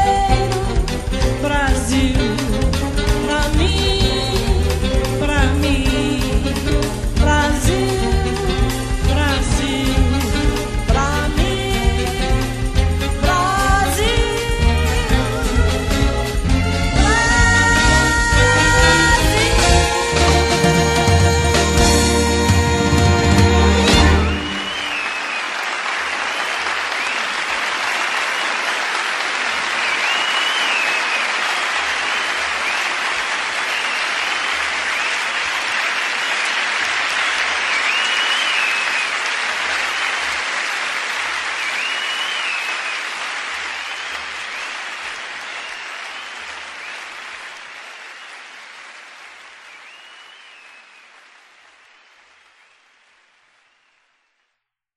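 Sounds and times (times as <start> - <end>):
audience applauding: 12.4 - 54.3
whistles from audience: 23.8 - 28.8, 29.5 - 40.4, 41.3 - 48.8, 49.5 - 52.9, 53.6 - 54.2.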